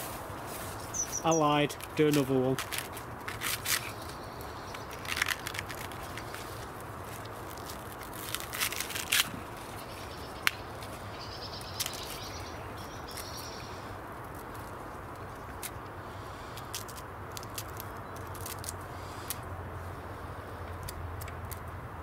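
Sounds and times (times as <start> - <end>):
dry corn husks crackling and tearing: 0.0 - 19.4, 20.8 - 21.7
outdoor background noise: 0.0 - 22.0
faint bird chirps: 0.8 - 1.4, 11.1 - 13.9.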